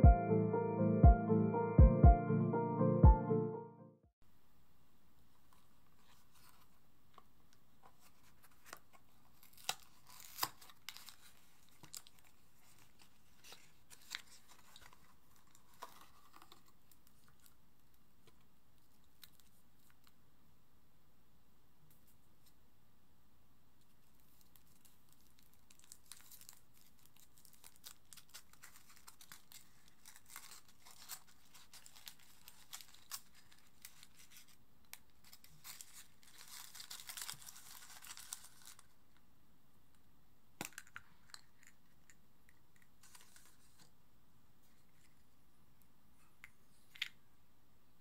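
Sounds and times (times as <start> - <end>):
foil wrapper crinkling and tearing: 9.3 - 16.6, 24.3 - 38.9.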